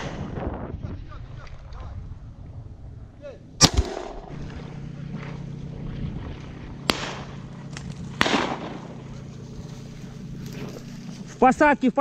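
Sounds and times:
steady low hum: 0.2 - 12.0
distant shotgun shots: 3.6 - 5.4, 6.3 - 9.2.

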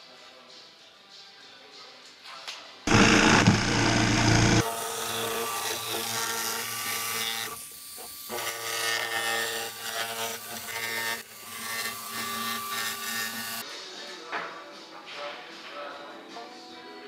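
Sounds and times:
jigsaw cutting wood: 2.9 - 13.6.

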